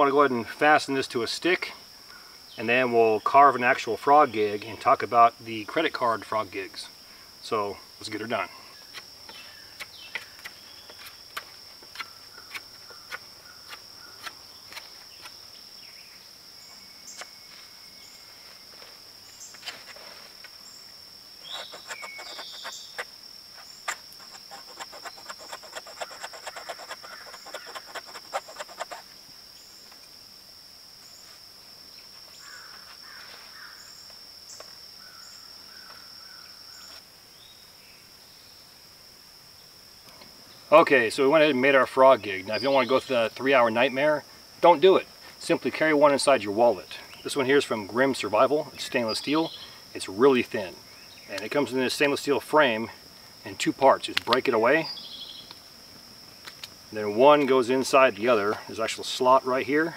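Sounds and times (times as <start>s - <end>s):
crickets droning: 0.0s - 59.9s
rapid scraping on wood: 21.4s - 29.2s.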